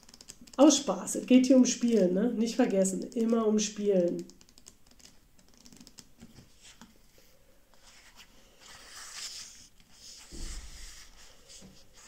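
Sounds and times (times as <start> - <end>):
book pages rustling: 4.4 - 12.0
book thump: 10.2 - 11.1.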